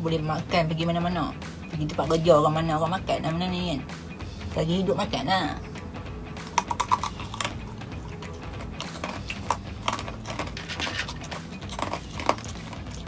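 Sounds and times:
hand clicking through snacks: 0:06.4 - 0:13.0
crunching crispy snacks: 0:08.2 - 0:13.0.

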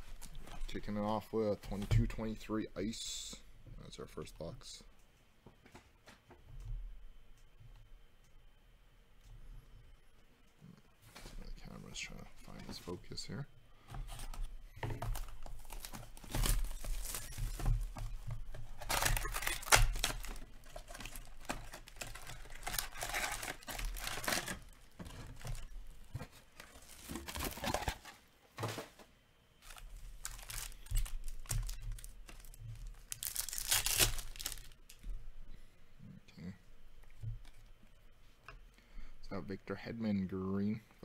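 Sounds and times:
card packs handled: 0:13.9 - 0:29.0, 0:29.6 - 0:35.0
cardboard flaps opening: 0:14.0 - 0:34.7
shrink wrap crinkling and tearing: 0:15.0 - 0:28.1, 0:29.6 - 0:35.0.

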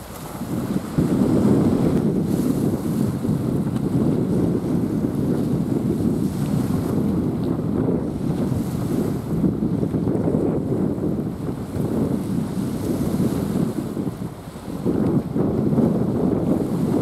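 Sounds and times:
wind buffeting microphone: 0:00.0 - 0:17.0.

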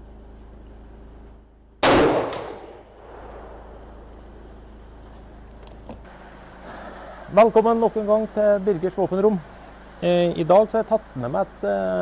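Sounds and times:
generator humming: 0:00.0 - 0:12.0
pistol shot ringing: 0:01.8 - 0:04.0.

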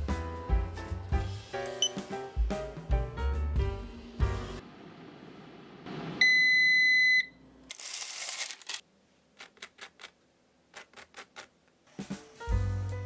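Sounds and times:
air fryer electronic beep: 0:06.2 - 0:07.4.

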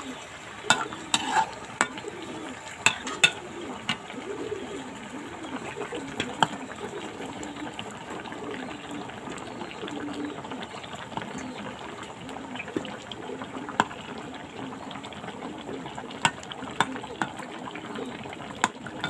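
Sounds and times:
curry bubbling in a pan: 0:00.0 - 0:19.0.

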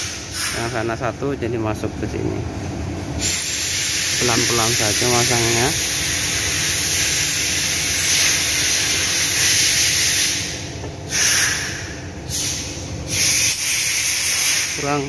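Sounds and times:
loud steady hiss: 0:03.2 - 0:11.6.

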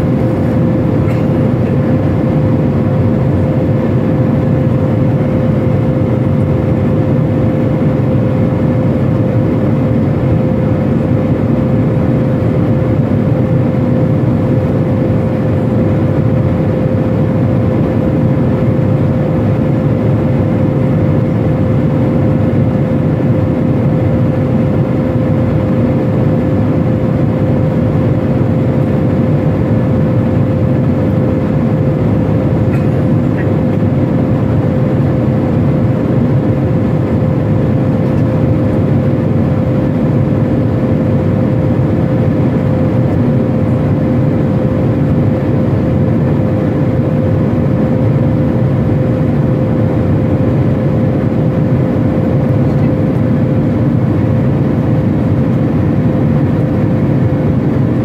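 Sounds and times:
constant hum: 0:00.0 - 0:58.0
jet engines droning: 0:00.0 - 0:58.0.

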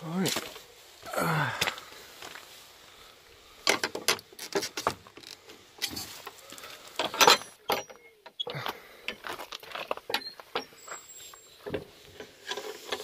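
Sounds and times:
wooden gate and metal latch rattling: 0:03.6 - 0:06.2, 0:07.0 - 0:10.9, 0:11.6 - 0:13.0.

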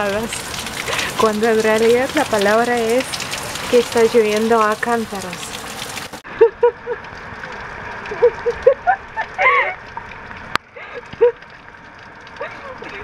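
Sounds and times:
heavy rain hissing: 0:00.0 - 0:06.2
woman laughing: 0:06.3 - 0:07.0, 0:08.1 - 0:09.9, 0:10.7 - 0:11.4, 0:12.4 - 0:13.0.

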